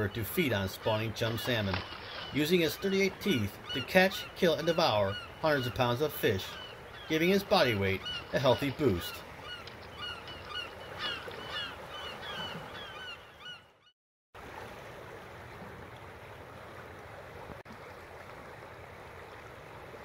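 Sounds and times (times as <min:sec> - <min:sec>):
gulls calling: 0:00.0 - 0:13.9
river water rushing: 0:01.2 - 0:04.7.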